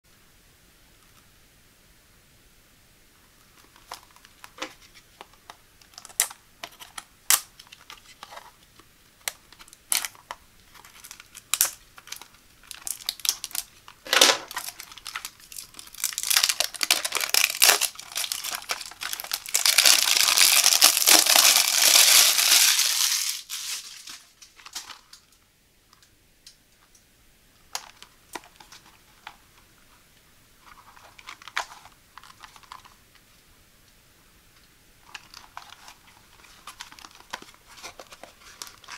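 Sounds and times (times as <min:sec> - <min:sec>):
plastic wrap crackling and tearing: 0:09.3 - 0:25.3, 0:30.6 - 0:33.0, 0:35.0 - 0:38.9.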